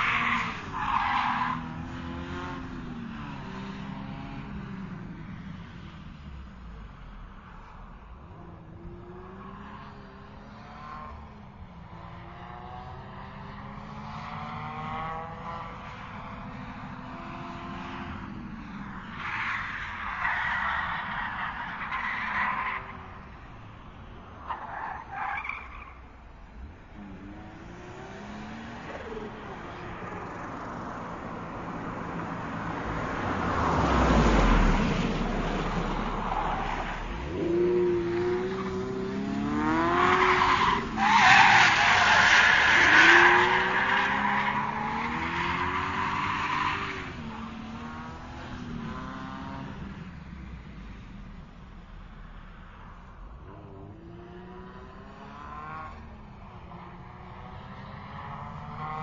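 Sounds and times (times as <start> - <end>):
tyres squealing and skidding: 0.0 - 2.6, 18.9 - 23.3, 24.4 - 26.2, 35.4 - 48.0
racing car engine revving: 36.6 - 49.9.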